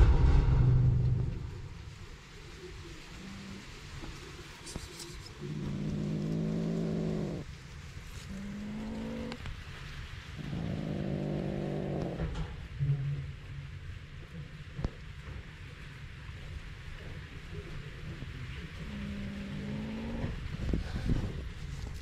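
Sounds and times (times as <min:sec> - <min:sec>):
kitten growling: 0:03.1 - 0:07.5, 0:08.1 - 0:09.4, 0:10.4 - 0:12.4, 0:18.5 - 0:21.4.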